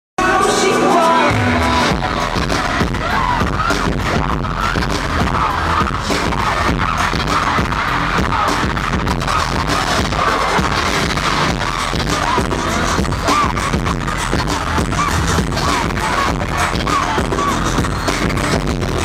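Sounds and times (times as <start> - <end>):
live pop music: 0.2 - 19.0.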